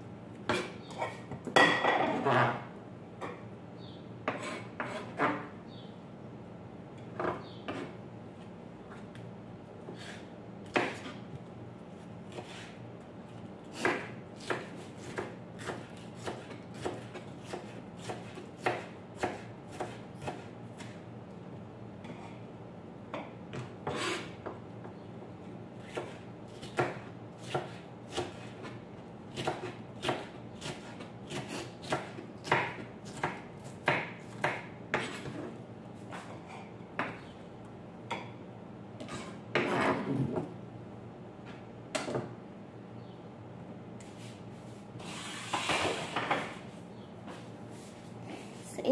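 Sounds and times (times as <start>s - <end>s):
knife chopping on plastic board: 13.8s - 21.0s, 25.9s - 35.4s.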